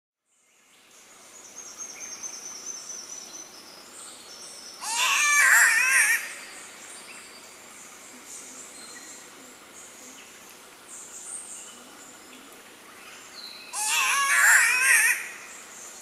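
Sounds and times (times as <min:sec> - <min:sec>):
bird giving cat-like wail: 0:13.8 - 0:15.3.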